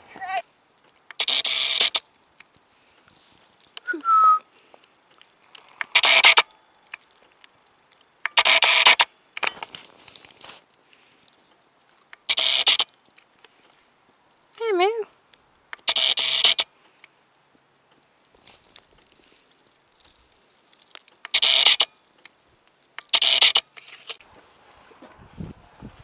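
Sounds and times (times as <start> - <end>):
breathy bursts of noise: 2.1 - 3.7, 9.9 - 11.8.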